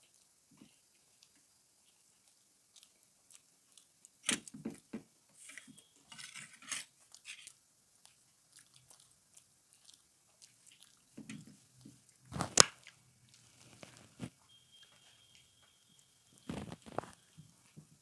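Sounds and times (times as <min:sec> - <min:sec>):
chewing close to microphone: 0:00.0 - 0:04.6, 0:06.8 - 0:14.3, 0:15.3 - 0:17.4.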